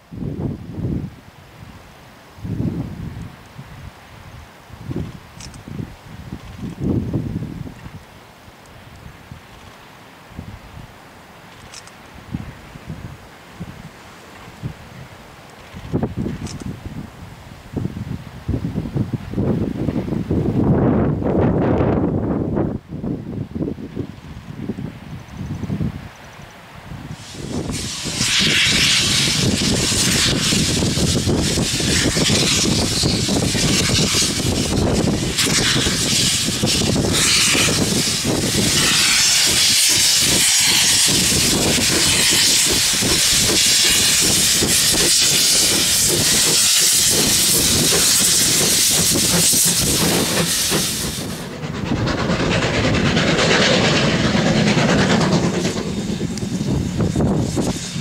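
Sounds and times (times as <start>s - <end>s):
loud steam hiss: 27.0s - 58.0s
steam locomotive exhaust beating: 27.1s - 58.0s.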